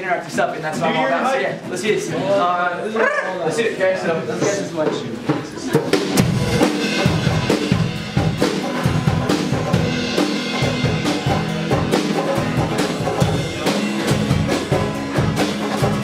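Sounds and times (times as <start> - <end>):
driving percussive beat: 4.2 - 16.0
acoustic guitars strummed hard: 5.7 - 16.0.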